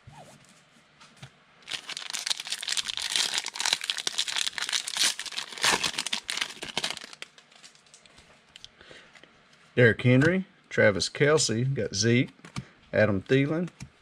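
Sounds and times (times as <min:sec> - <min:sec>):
foil wrapper tearing and crinkling: 0:01.6 - 0:07.9.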